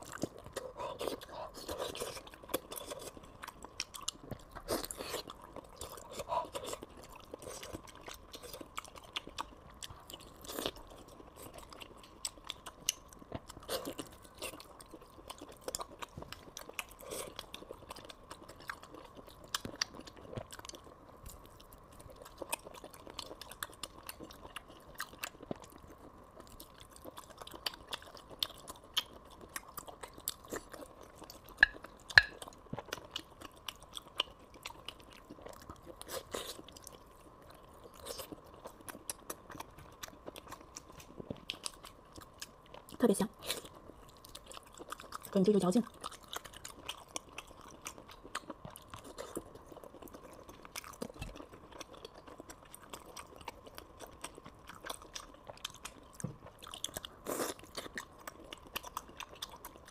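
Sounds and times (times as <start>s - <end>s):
wet chewing mouth smacks: 26.8s - 36.7s.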